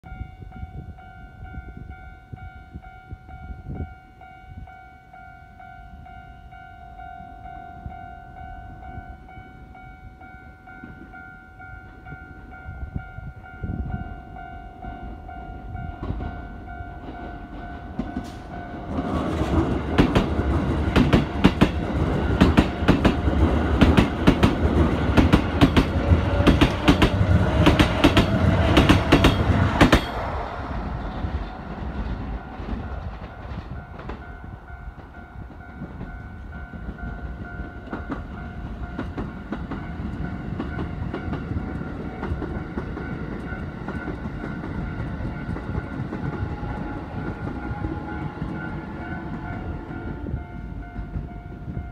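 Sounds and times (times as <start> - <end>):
train wheels clattering over rails: 17.0 - 34.4, 35.0 - 51.6
train motor whine: 43.9 - 51.4.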